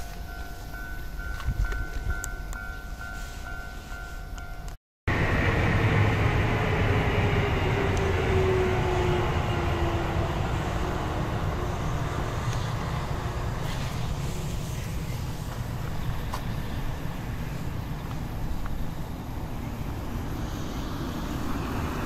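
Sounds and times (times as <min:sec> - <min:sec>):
vehicle passing with whine: 0:05.1 - 0:22.0.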